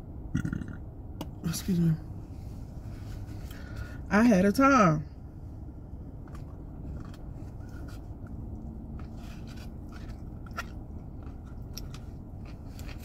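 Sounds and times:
car cabin rumble: 0.6 - 13.0
person chewing food: 6.1 - 13.0.

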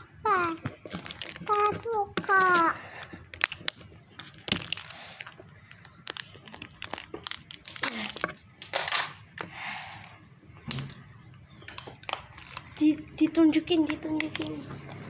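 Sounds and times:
plastic wrapping crinkling and tearing: 0.7 - 9.2, 11.6 - 12.9.

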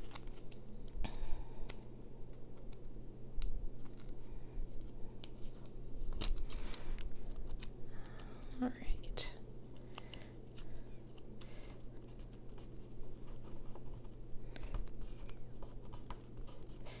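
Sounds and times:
paper handling: 0.0 - 0.9, 3.8 - 8.4, 9.6 - 17.0.

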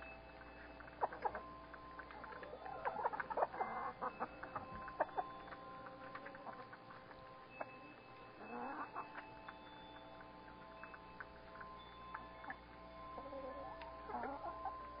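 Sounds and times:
hens clucking: 0.8 - 7.1, 8.4 - 9.2, 13.2 - 14.8.

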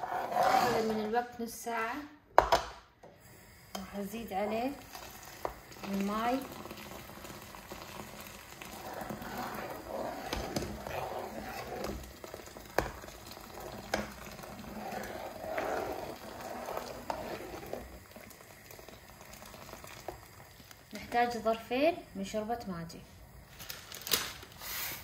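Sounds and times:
ladle stirring mixture: 4.5 - 21.3
water pouring and splashing: 4.8 - 21.0.

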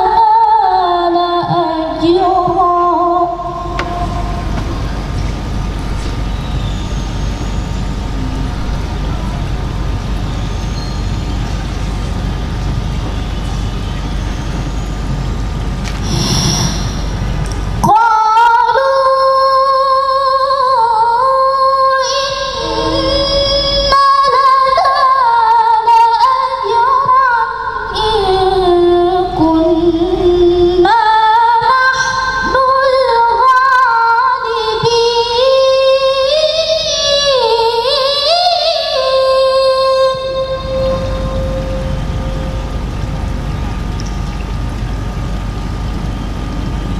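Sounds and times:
woman reciting melodically: 0.0 - 5.1, 17.8 - 42.4.

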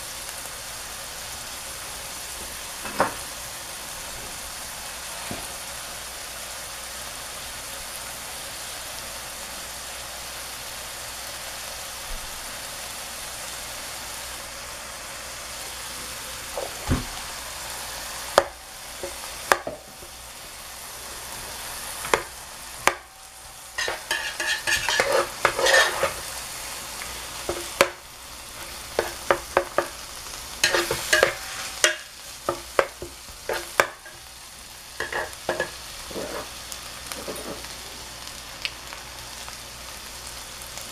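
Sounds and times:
food sizzling in a pan: 0.0 - 40.9
metal ladle knocking and scraping pan: 23.8 - 26.3, 27.5 - 28.0, 29.0 - 30.0, 30.6 - 34.2, 35.0 - 36.5.

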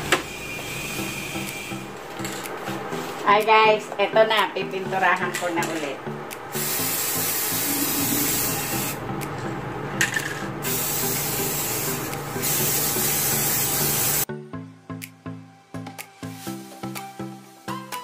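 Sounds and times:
background music: 1.0 - 18.0
spray paint can hissing: 6.5 - 9.0, 10.6 - 14.3.

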